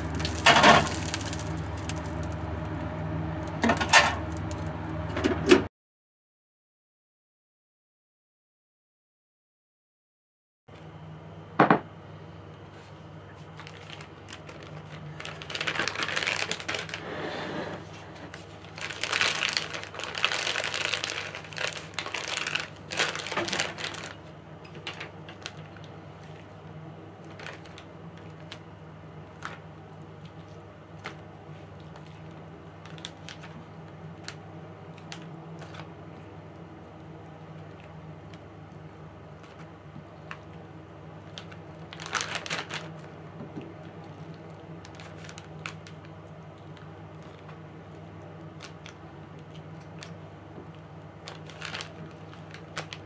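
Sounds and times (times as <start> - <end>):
plastic bag crinkling: 0.0 - 2.4, 13.4 - 17.2, 17.9 - 26.4, 27.2 - 28.6, 29.2 - 35.9, 39.4 - 43.1, 43.8 - 53.0
low steady hum: 0.0 - 5.7, 10.7 - 53.0.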